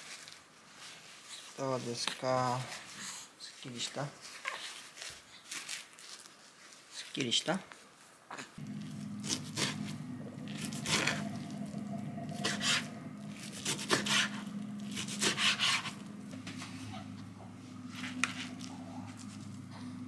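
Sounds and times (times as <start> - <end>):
low steady hum: 8.6 - 20.0.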